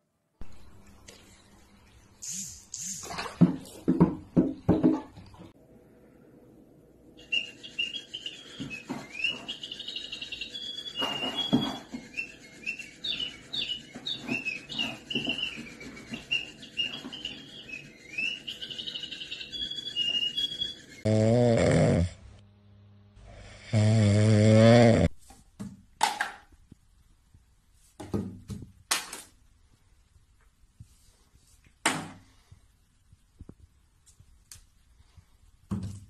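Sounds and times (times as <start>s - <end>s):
high bird-like chirping: 2.2s - 3.1s, 7.2s - 21.1s
soft knocks and thumps: 3.4s - 5.5s.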